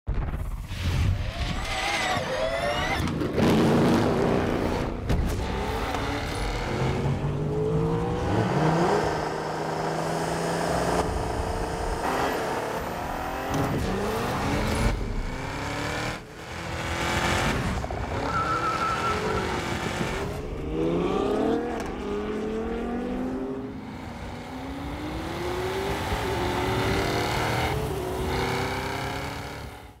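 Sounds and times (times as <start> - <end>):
car engines revving with upshifts: 1.6 - 30.0.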